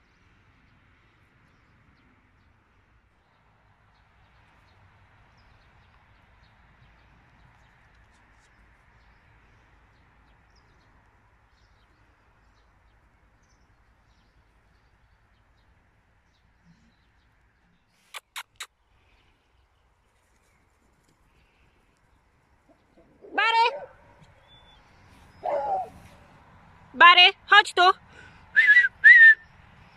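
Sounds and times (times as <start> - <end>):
faint farmyard ambience: 0.1 - 29.9
sharp clicks: 18.1 - 18.7
faint bird chirps: 24.2 - 25.9.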